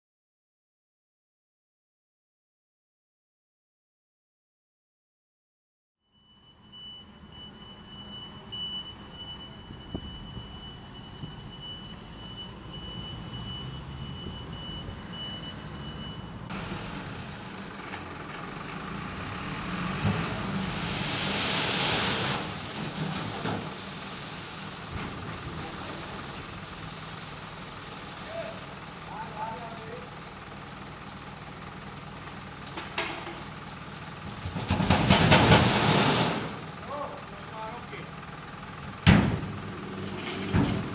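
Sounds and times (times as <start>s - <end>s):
truck engine running: 6.9s - 21.1s, 22.2s - 40.9s
asphalt sliding off tipper bed: 7.6s - 40.9s
shovels scraping on road: 35.4s - 36.6s.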